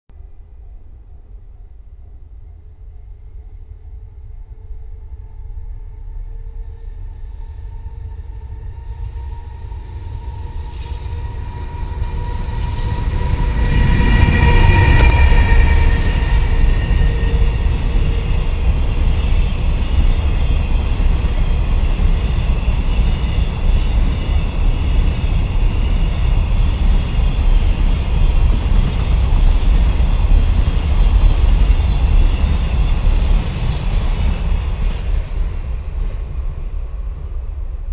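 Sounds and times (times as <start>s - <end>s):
train wheels rolling on rail: 8.5s - 37.9s.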